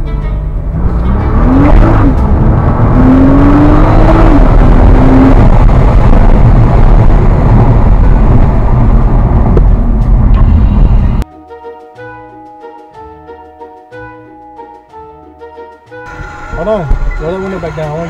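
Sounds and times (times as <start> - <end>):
orchestral music: 0.0 - 2.6, 10.4 - 18.0
wind and road noise: 0.0 - 11.3, 16.0 - 18.0
car engine accelerating: 0.4 - 11.2, 16.1 - 18.0.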